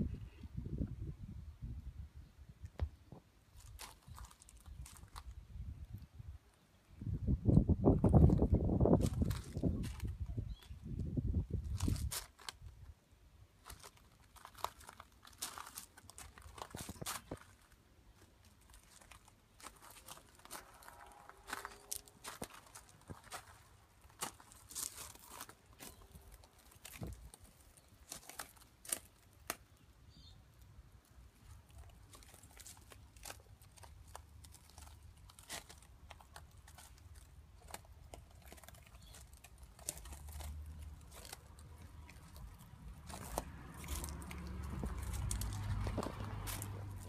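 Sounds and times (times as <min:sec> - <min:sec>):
footsteps on gravel: 0:03.6 - 0:05.2, 0:13.7 - 0:29.1, 0:32.0 - 0:47.0.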